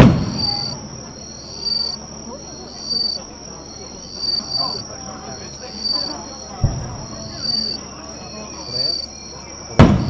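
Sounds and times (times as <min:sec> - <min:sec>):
firework boom: 0:00.0 - 0:00.9, 0:06.6 - 0:07.4, 0:09.8 - 0:10.0
high insect drone: 0:00.0 - 0:10.0
insects chirping in high pulses: 0:00.0 - 0:10.0.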